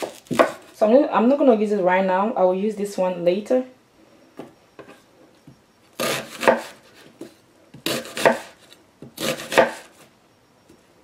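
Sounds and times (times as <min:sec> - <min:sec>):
knife slicing onion on wooden board: 0:00.0 - 0:00.7, 0:06.0 - 0:10.0.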